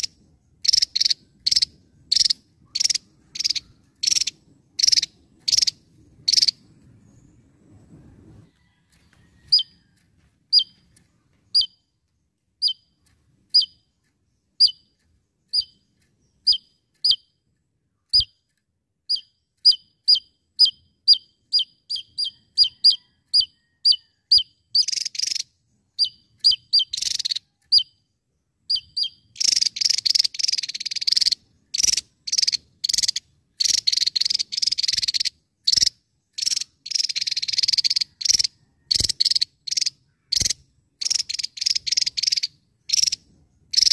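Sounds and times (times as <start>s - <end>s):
bird buzzy rattling: 0.0s - 8.0s, 28.8s - 43.9s.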